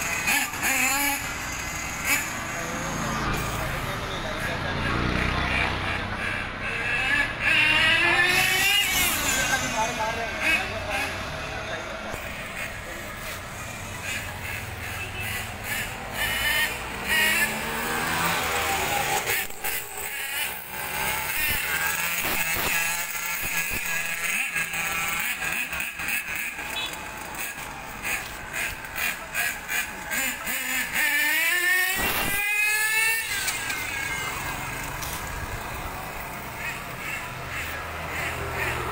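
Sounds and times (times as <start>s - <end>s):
toy car motor whining: 0.0s - 3.7s, 4.9s - 11.5s, 12.1s - 38.9s.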